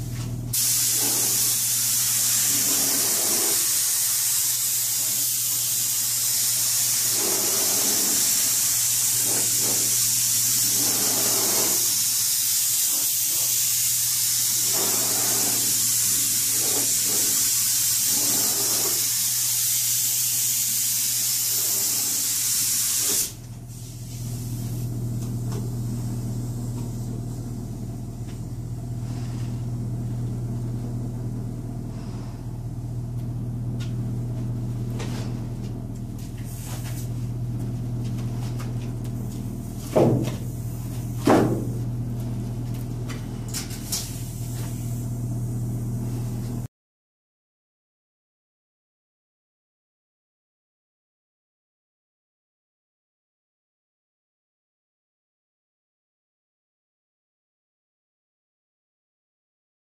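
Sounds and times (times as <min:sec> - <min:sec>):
paint spray gun hissing: 0:00.5 - 0:24.8
steady low hum: 0:23.4 - 0:46.7.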